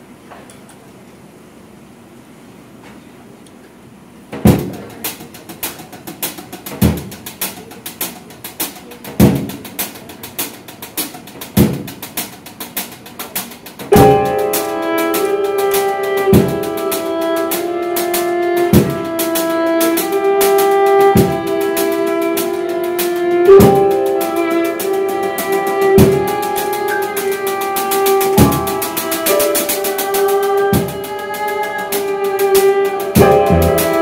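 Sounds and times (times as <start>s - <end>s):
percussive groove: 4.3s - 34.0s
bowed violin melody: 14.0s - 34.0s.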